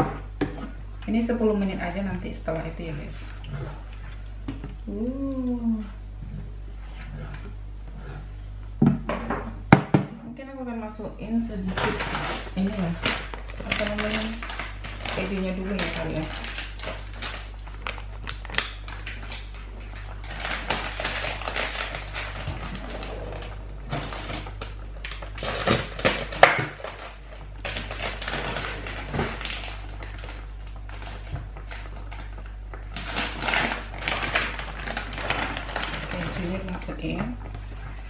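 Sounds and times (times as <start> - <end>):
steady low hum: 0.0 - 38.0
kitchen rustling and clicking: 11.6 - 38.0.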